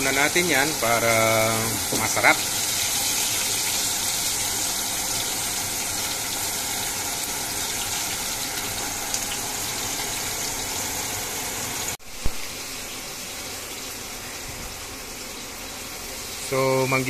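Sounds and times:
fish deep-frying in hot oil: 0.0s - 17.0s
faint steady hiss: 12.0s - 17.0s.

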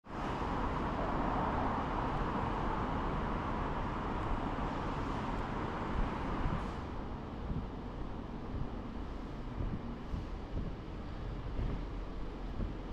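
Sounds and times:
road traffic rush: 0.1s - 12.9s.

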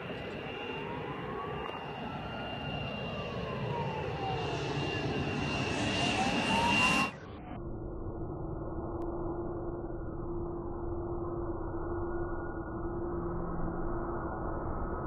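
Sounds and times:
turboprop engine on approach: 0.0s - 7.5s.

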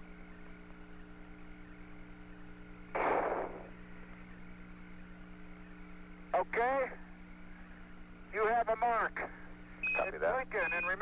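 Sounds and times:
radio hum of held tones: 0.0s - 11.0s
static burst: 2.9s - 3.8s.

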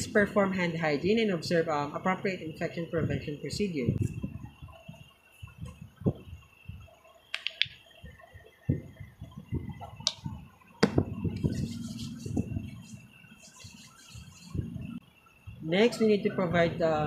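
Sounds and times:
sharp clicks: 7.3s - 7.8s.

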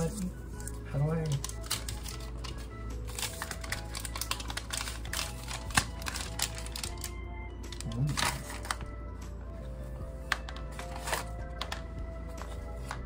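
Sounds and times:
plastic wrap crinkling: 0.0s - 8.9s
background music: 0.0s - 13.0s.

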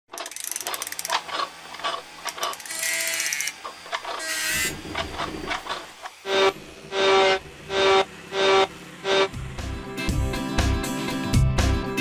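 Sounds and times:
ratcheting clicks: 0.1s - 4.2s
mechanical whirring: 0.1s - 9.6s.

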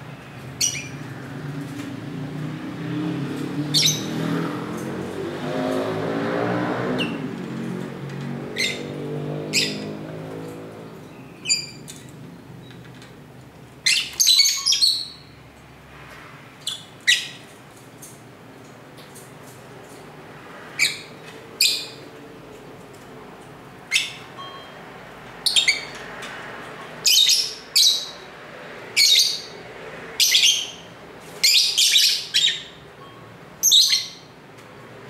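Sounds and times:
passing vehicle engine: 0.0s - 12.6s, 15.4s - 33.6s
lovebirds chirping: 0.6s - 1.0s, 3.7s - 4.3s, 9.5s - 10.0s, 10.9s - 12.8s, 13.8s - 15.4s, 20.8s - 22.0s, 25.4s - 26.0s, 27.0s - 28.3s, 29.0s - 29.6s, 30.2s - 34.4s.

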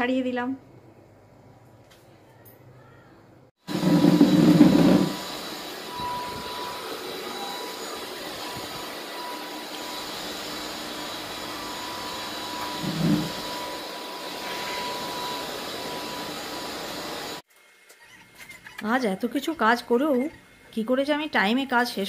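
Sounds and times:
stick vacuum cleaner motor whine: 3.7s - 17.4s.

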